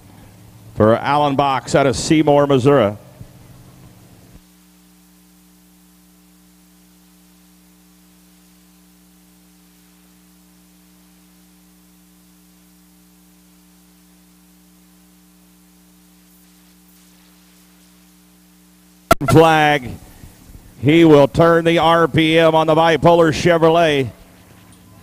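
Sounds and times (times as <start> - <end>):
electrical mains hum: 0.0 - 25.0
faint hiss: 13.3 - 21.3.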